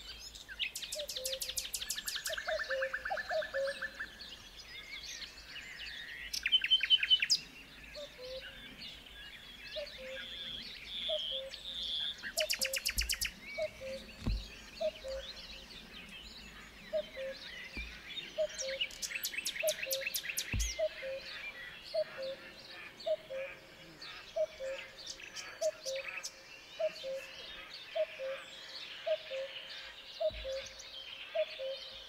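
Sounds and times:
birds singing and chirping: 0:00.0 - 0:32.0
dull low thumps: 0:12.5 - 0:15.4, 0:19.8 - 0:21.1.

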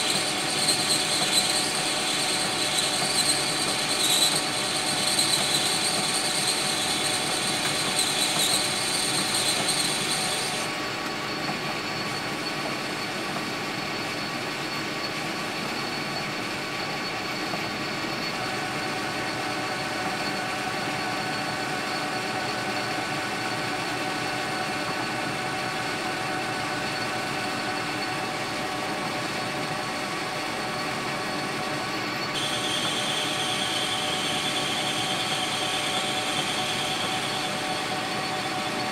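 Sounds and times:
metal lathe spindle whine: 0:00.0 - 0:38.9
cutting tool hissing on brass: 0:32.4 - 0:37.9.

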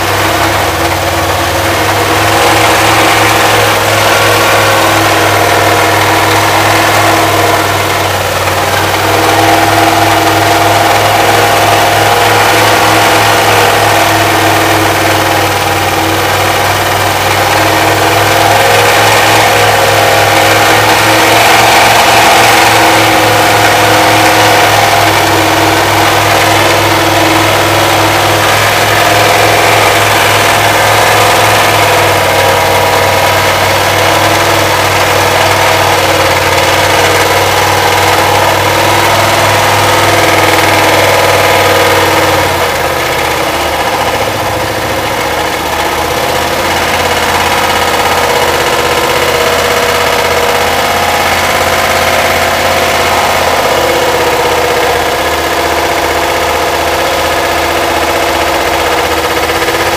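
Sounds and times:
van engine running: 0:00.0 - 0:59.9.

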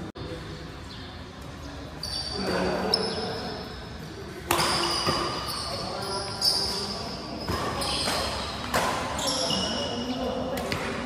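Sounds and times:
shoes squeaking on court floor: 0:00.9 - 0:11.0
racket striking shuttlecock: 0:04.5 - 0:05.4.

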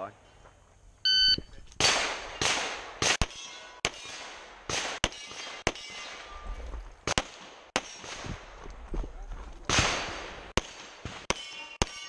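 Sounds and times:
pistol shots: 0:01.8 - 0:06.4, 0:07.0 - 0:08.3, 0:09.7 - 0:12.0.

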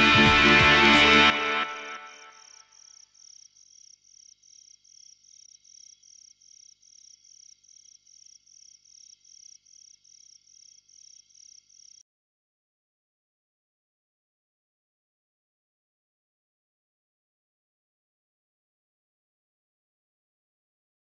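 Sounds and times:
cricket chirping: 0:02.0 - 0:12.0.

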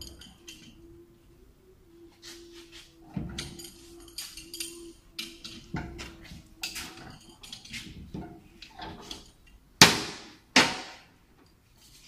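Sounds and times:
hand tools clinking on metal: 0:00.0 - 0:00.8, 0:02.2 - 0:09.6
loud ringing metal clangs: 0:03.0 - 0:11.0.

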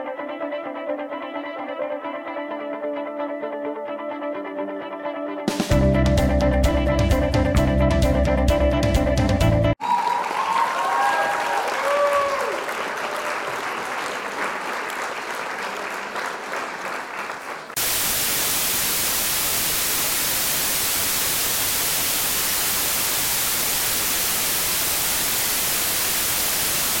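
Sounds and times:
people clapping: 0:09.8 - 0:17.8
white-noise static: 0:17.8 - 0:27.0.

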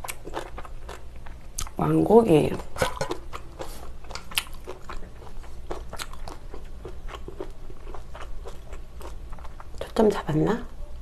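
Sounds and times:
biting and chewing: 0:00.0 - 0:01.8, 0:02.6 - 0:09.9.

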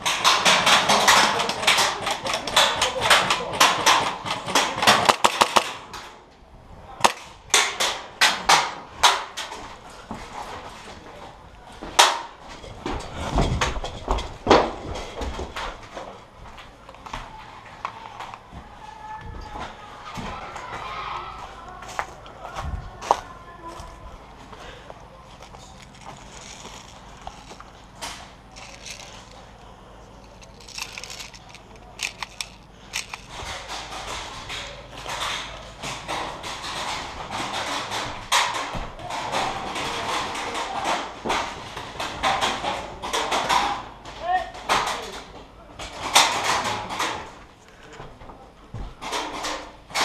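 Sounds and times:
sharp cracks and knocks: 0:00.0 - 0:06.2, 0:07.0 - 0:11.0, 0:11.8 - 0:16.2, 0:30.3 - 0:47.4.

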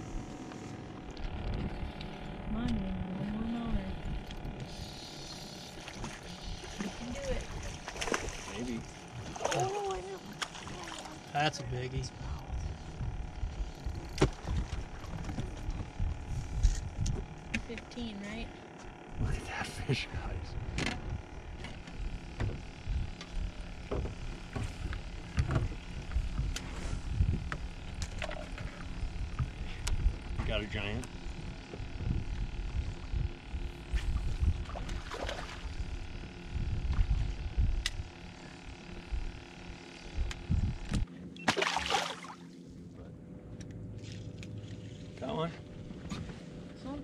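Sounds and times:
wind and water rumble: 0:00.0 - 0:47.0
water splash: 0:34.7 - 0:35.7, 0:41.4 - 0:42.4.

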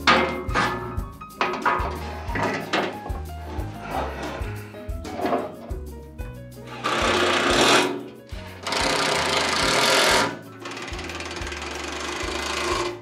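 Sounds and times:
low bass line: 0:00.0 - 0:07.6.

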